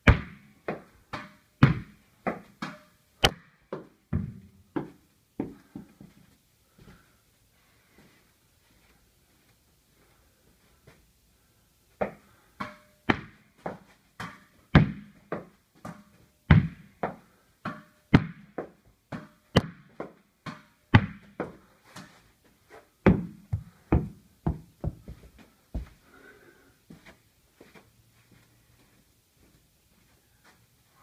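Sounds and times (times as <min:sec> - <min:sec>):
tennis ball echoing knocks: 0:19.1 - 0:21.3.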